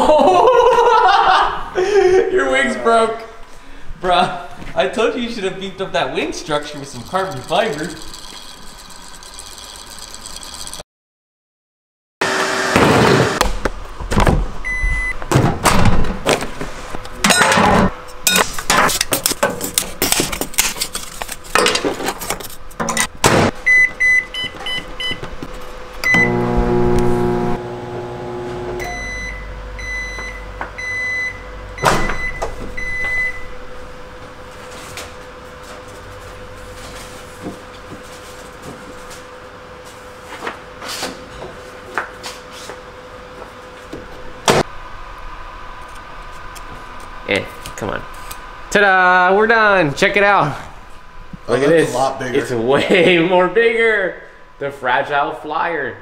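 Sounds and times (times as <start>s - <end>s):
microwave oven humming: 6.5s - 10.8s, 23.6s - 40.4s.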